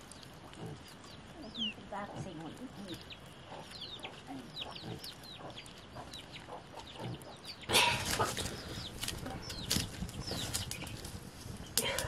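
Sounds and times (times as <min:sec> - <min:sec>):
wood fire being stirred: 0:00.0 - 0:03.9, 0:07.7 - 0:12.0
chickens peeping and clucking: 0:00.0 - 0:12.0.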